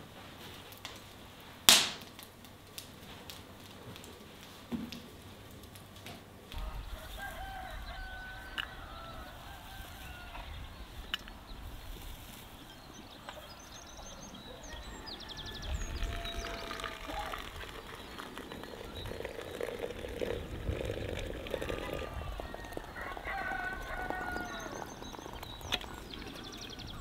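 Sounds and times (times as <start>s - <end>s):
chickens calling: 6.5s - 27.0s
small birds chirping: 6.5s - 27.0s.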